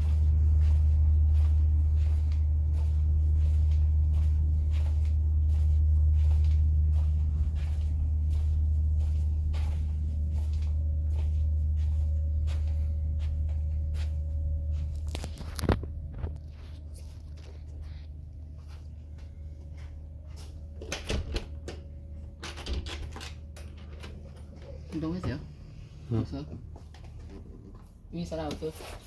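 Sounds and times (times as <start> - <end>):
footsteps on carpet: 0.0 - 20.8
steady low hum: 0.0 - 29.0.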